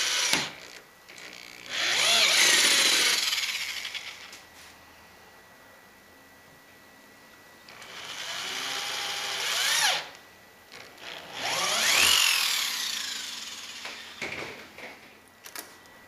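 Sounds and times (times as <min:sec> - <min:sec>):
electric drill whirring: 0:00.0 - 0:04.4, 0:07.7 - 0:14.7.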